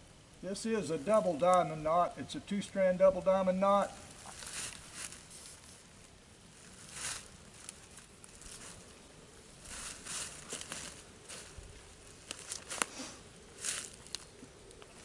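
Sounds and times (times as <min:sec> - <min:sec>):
webbing strap rustling: 0:04.0 - 0:05.8.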